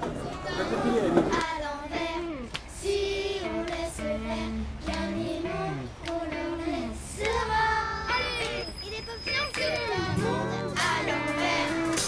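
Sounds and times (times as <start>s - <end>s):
person singing long notes: 4.9s - 6.9s.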